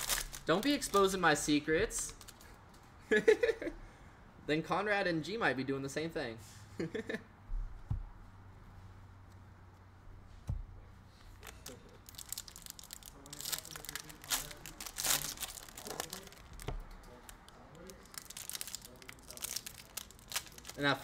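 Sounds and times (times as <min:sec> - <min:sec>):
foil wrapper tearing and crinkling: 0:00.0 - 0:01.2, 0:11.4 - 0:21.0.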